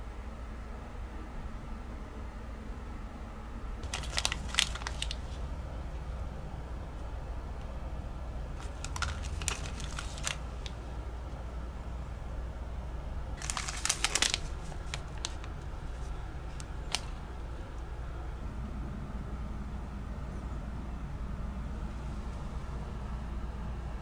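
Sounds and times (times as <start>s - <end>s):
steady low hum: 0.0s - 24.0s
foil and plastic wrappers crinkling: 3.8s - 5.5s, 8.6s - 10.8s, 13.4s - 17.2s.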